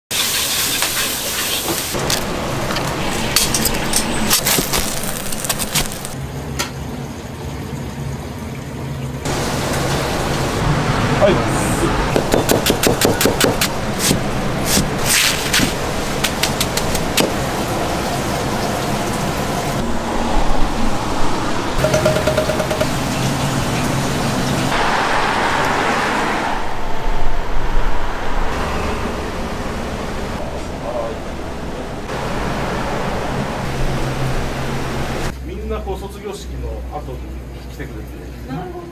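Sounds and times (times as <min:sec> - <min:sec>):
street traffic hiss: 0:00.1 - 0:06.2, 0:09.3 - 0:21.8, 0:22.5 - 0:35.4
wok sizzling: 0:00.1 - 0:06.2, 0:09.3 - 0:11.2
vehicle passing rumble: 0:09.2 - 0:35.4
knife chopping on a board: 0:12.2 - 0:14.9.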